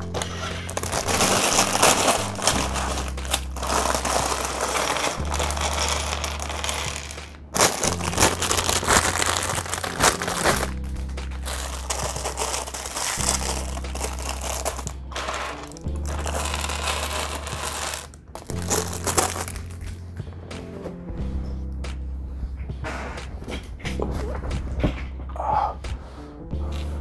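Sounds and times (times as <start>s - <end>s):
plastic bag crinkling: 0.0s - 19.8s
background music with bass: 0.0s - 27.0s.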